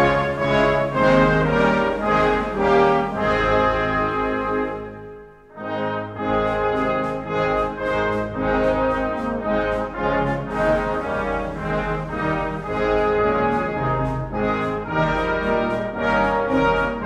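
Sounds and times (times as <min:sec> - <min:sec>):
brass band playing a hymn: 0:00.0 - 0:17.0.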